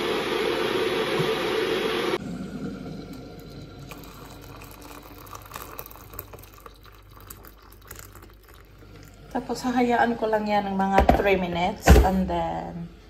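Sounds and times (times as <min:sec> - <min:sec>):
hot water pouring into a mug: 0:00.0 - 0:10.4
kettle hissing: 0:00.0 - 0:12.0.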